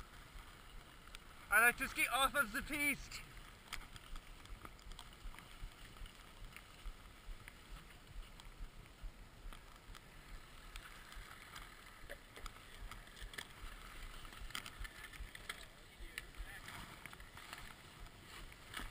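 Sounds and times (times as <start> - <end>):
skis running through powder snow: 13.2 - 18.9.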